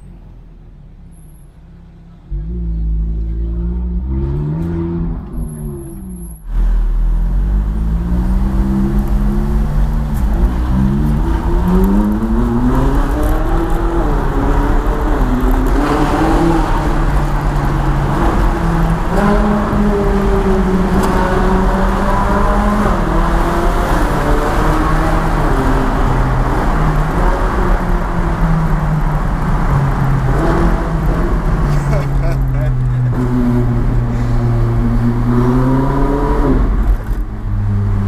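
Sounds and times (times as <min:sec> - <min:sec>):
car engine revving in tunnel: 0:00.0 - 0:38.0.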